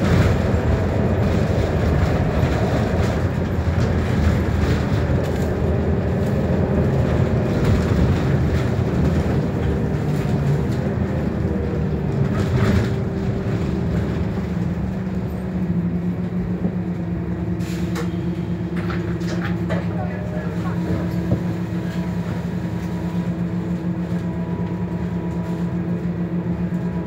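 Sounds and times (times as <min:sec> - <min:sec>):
bus diesel engine running: 0:00.0 - 0:27.0.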